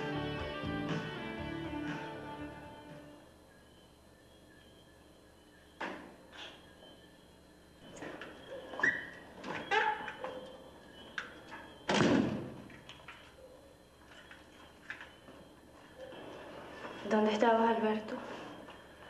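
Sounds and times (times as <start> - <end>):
loud thud: 11.9 - 12.6.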